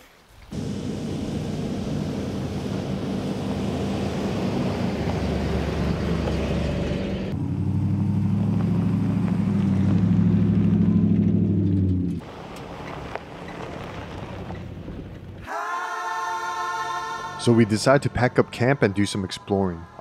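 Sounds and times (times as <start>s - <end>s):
tyres on gravel road: 0.0s - 15.5s
off-road vehicles driving past: 0.5s - 15.4s.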